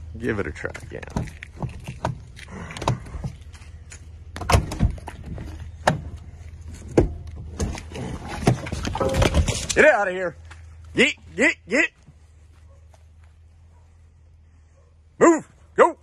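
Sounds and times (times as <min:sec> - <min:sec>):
truck door clicks and clunks: 0:04.3 - 0:06.2.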